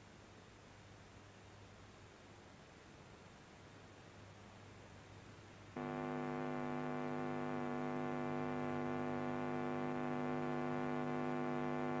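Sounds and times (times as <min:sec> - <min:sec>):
electrical mains hum: 0:04.6 - 0:12.0.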